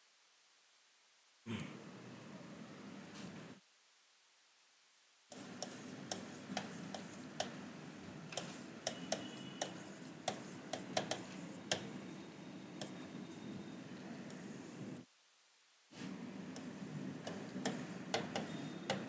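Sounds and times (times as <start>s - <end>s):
taps of writing on a board: 5.4s - 7.6s, 8.4s - 11.9s, 16.6s - 19.0s.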